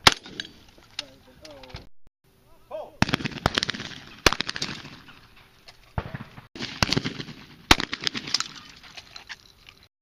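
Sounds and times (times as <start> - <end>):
shotgun blasts with echo: 0.0 - 0.6, 3.0 - 5.2, 6.0 - 8.8.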